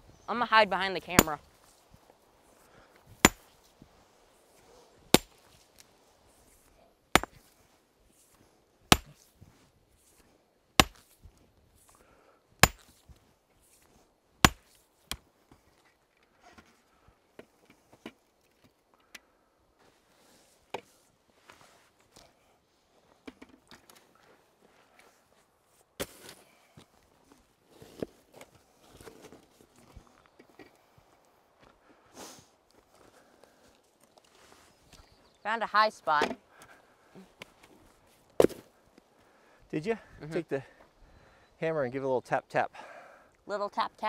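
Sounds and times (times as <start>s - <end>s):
sledgehammer striking rock: 3.2s - 3.5s, 5.1s - 5.4s, 7.2s - 7.5s, 8.9s - 9.2s, 10.8s - 11.1s, 12.6s - 13.0s, 14.4s - 14.8s.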